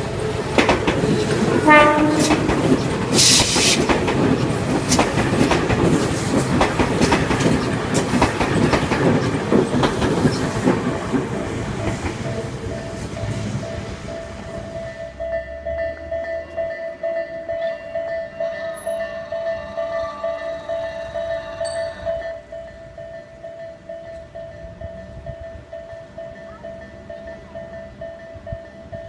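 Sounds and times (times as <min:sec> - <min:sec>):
train wheels clacking over rail joints: 0:00.0 - 0:16.6
crossing warning tone: 0:00.0 - 0:29.0
train horn blast: 0:01.1 - 0:03.5.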